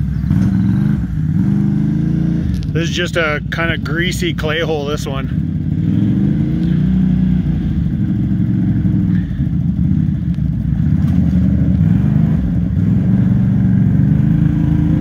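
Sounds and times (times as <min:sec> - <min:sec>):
vehicle engine running: 0:00.0 - 0:15.0.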